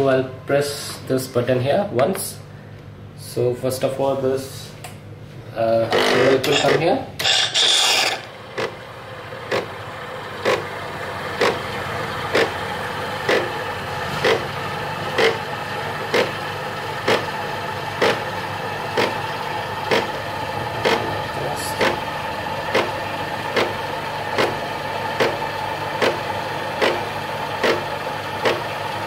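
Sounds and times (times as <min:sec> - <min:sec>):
pump humming with sharp pulses: 0:05.8 - 0:29.0
espresso machine hissing: 0:06.2 - 0:29.0.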